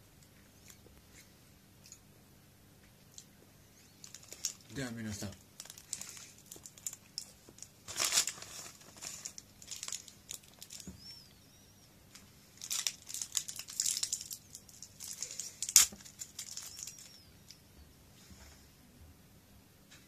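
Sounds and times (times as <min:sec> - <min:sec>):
candy wrappers crinkling: 0:03.9 - 0:11.4, 0:12.1 - 0:17.6.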